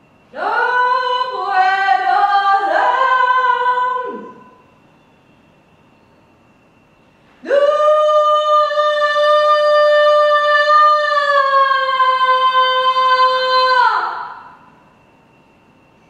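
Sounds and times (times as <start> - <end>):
woman singing high note: 0.3 - 4.6, 7.4 - 14.7.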